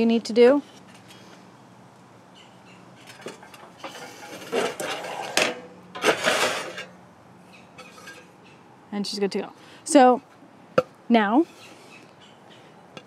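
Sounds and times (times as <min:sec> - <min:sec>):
tile scraping on metal: 0:03.1 - 0:06.9.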